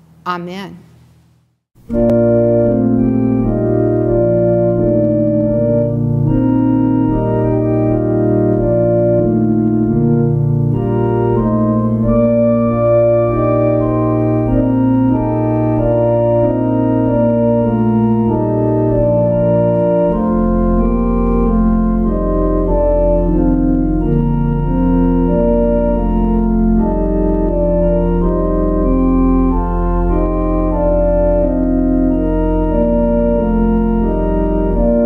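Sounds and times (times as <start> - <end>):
organ playing slow chords: 1.8 - 35.0.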